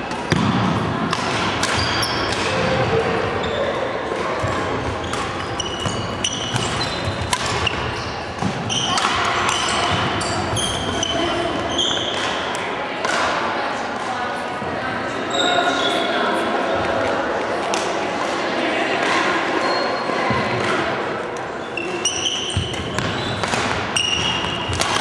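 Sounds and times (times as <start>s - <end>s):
voices in hall: 0.0s - 25.0s
rackets striking shuttlecock: 0.1s - 2.9s, 4.4s - 11.2s, 12.0s - 13.5s, 22.0s - 25.0s
shoes squeaking on wooden court: 1.6s - 12.4s, 21.6s - 25.0s.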